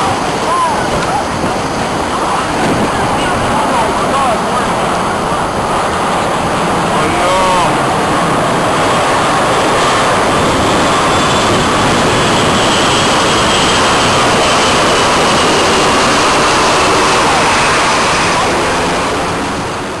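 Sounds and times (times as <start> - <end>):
jet engines roaring overhead: 0.0 - 20.0.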